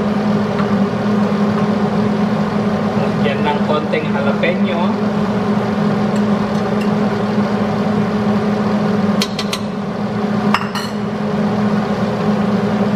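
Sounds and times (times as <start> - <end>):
range hood fan humming: 0.0 - 12.9.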